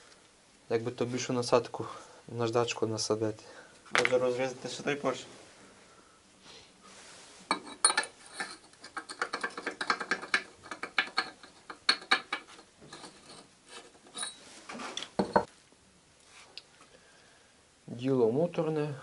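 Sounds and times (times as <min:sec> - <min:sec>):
metal clanking and scraping: 0:12.2 - 0:15.5.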